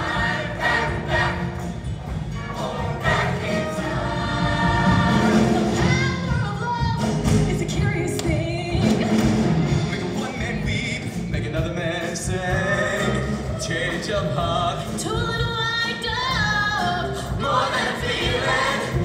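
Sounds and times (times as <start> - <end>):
choir singing: 0.0 - 6.1, 12.3 - 14.5, 17.2 - 19.0
instrumental backing music: 0.0 - 19.0.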